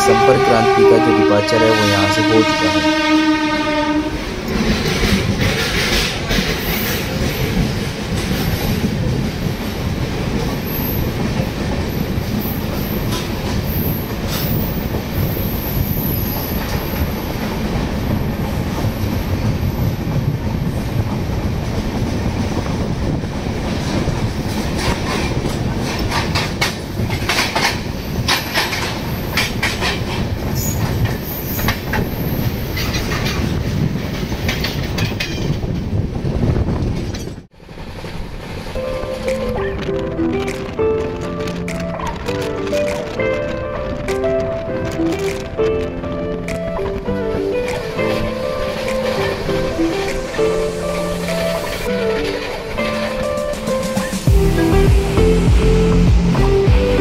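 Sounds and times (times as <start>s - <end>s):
train rumbling: 0.0s - 57.0s
wheel clacks over rail joints: 23.8s - 35.9s.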